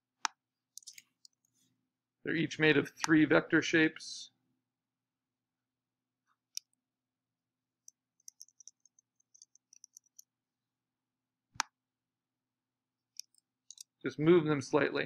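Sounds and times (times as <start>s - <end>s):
computer mouse clicks: 0.8s - 1.4s, 7.8s - 10.3s, 13.2s - 13.9s.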